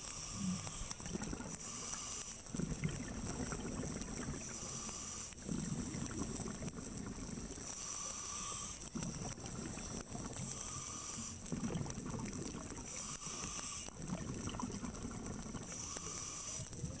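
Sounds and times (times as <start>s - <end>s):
regulator hiss on inhale: 0.0s - 17.0s
exhale bubbling rumble: 0.4s - 1.6s, 2.5s - 4.6s, 5.4s - 7.6s, 8.9s - 10.4s, 11.4s - 12.9s, 13.9s - 15.7s.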